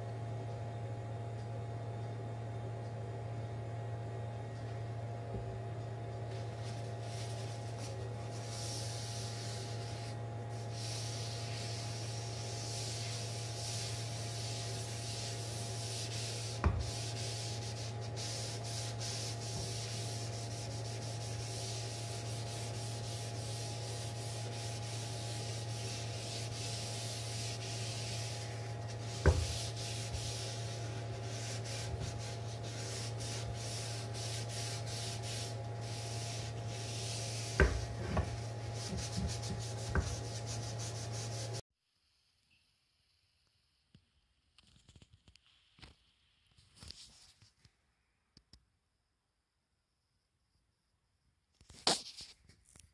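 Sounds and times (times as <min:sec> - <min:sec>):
steady low hum: 0:00.0 - 0:44.4
cloth wiping wooden board: 0:06.3 - 0:41.6.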